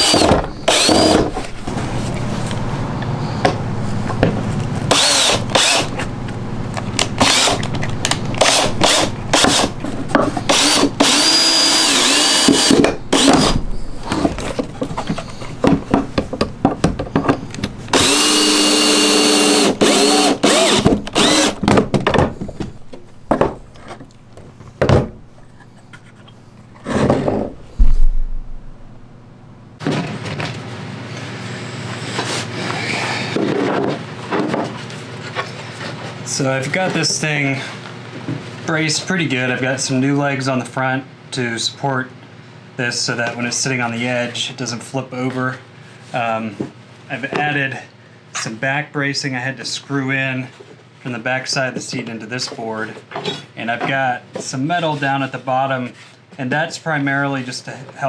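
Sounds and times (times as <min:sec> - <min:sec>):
power drill driving screws: 0:00.0 - 0:01.3, 0:04.9 - 0:05.9, 0:07.2 - 0:07.6, 0:08.4 - 0:09.7, 0:10.5 - 0:13.6, 0:17.9 - 0:21.6.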